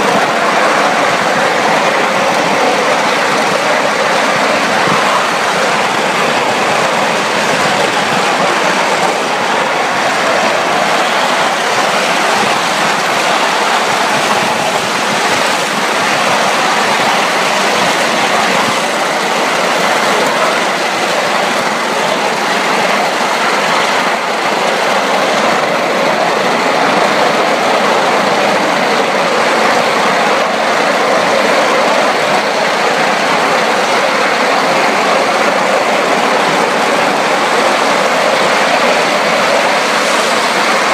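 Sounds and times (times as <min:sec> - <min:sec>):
miniature steam train running: 0:00.0 - 0:40.9.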